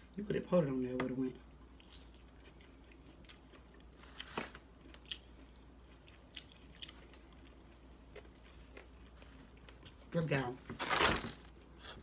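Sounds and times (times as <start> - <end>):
chewing food: 1.6 - 10.2.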